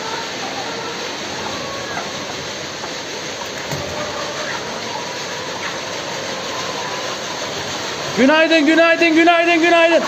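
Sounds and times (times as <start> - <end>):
automatic feeder line running: 0.0 - 10.0.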